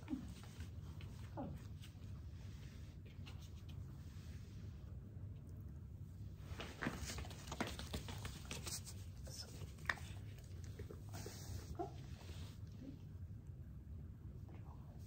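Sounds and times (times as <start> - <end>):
soft rustling: 6.1 - 13.0.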